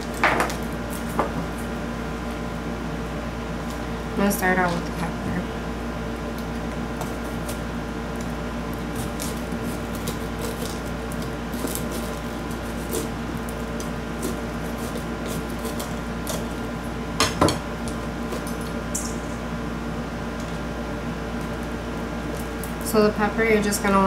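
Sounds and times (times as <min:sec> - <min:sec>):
knife cutting bell pepper: 0:08.8 - 0:16.5.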